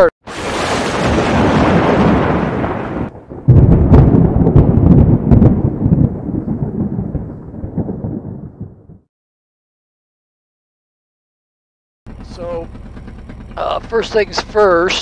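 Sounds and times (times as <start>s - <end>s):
deep rolling rumble: 0.8s - 9.0s, 12.1s - 15.0s.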